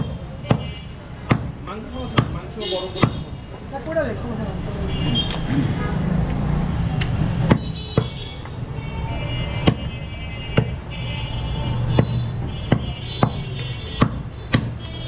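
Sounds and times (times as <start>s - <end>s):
knife chopping on wooden block: 14.0s - 14.8s.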